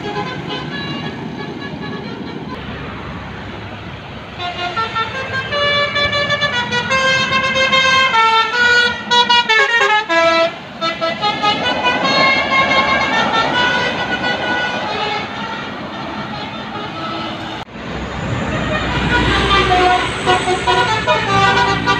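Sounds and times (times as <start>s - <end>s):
bus horn playing melody: 0.0s - 2.7s, 4.3s - 21.9s
bus engine: 0.0s - 21.9s.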